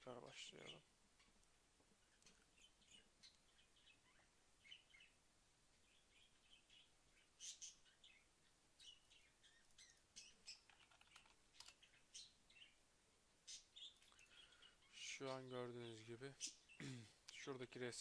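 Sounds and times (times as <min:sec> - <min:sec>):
computer keyboard typing: 0:10.7 - 0:11.8.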